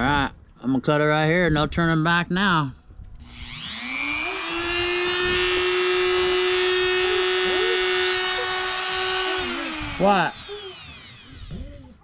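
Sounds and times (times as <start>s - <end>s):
rotary tool whining: 3.2s - 12.0s.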